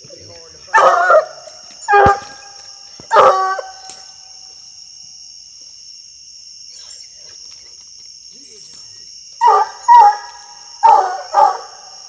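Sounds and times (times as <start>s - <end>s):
night insects trilling: 0.0s - 12.0s
dog barking: 0.7s - 2.4s, 3.1s - 3.8s, 9.4s - 11.8s.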